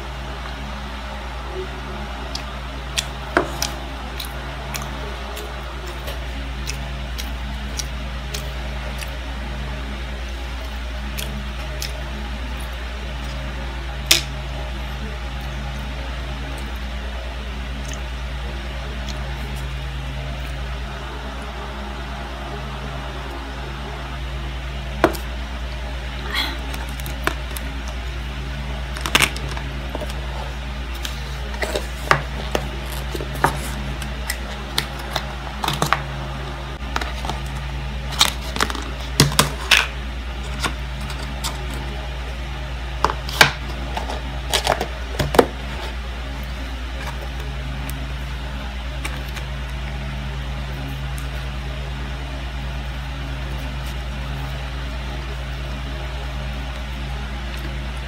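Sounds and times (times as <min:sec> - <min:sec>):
low hum: 0:00.0 - 0:58.0
eating clicks and smacks: 0:02.3 - 0:09.2.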